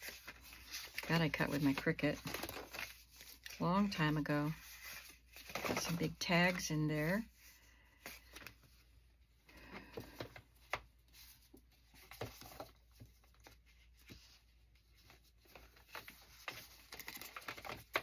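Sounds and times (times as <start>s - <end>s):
paper cards rustling and tapping: 0.0s - 6.7s, 9.5s - 18.0s.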